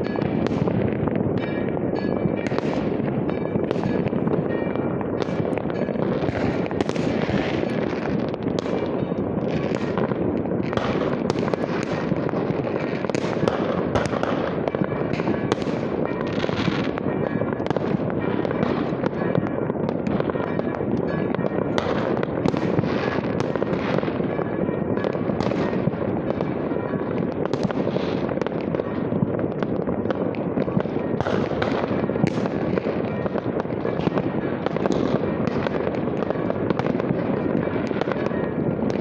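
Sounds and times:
fireworks bangs and crackles: 0.0s - 39.0s.

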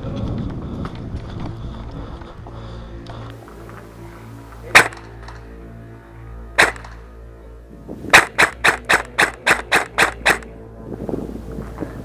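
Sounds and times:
airsoft rifle shots: 4.7s - 5.4s, 6.6s - 7.0s, 8.1s - 10.5s.

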